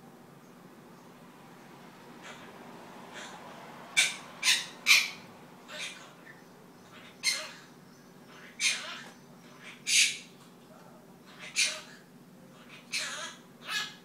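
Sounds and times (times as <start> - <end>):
parrot squawking: 2.2 - 10.3, 11.2 - 14.0.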